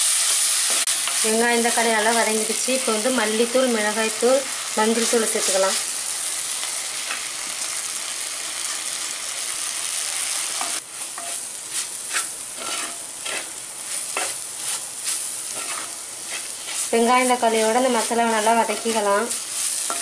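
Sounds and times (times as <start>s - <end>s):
vegetables sizzling in oil: 0.0s - 20.0s
wooden spatula scraping pot: 11.2s - 20.0s.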